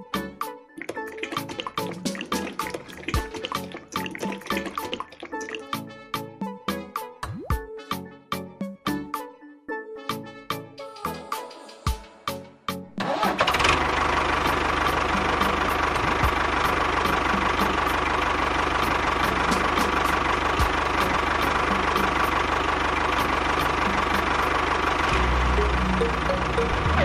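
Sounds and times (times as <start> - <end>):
mini tractor engine running: 13.0 - 27.0.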